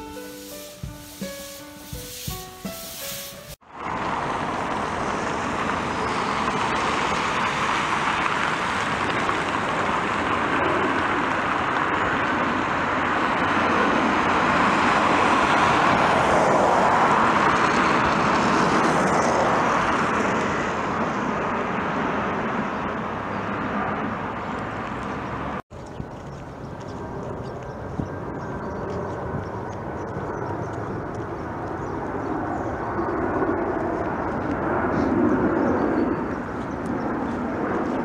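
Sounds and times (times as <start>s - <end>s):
jet passing overhead: 0.0s - 25.6s, 26.9s - 38.0s.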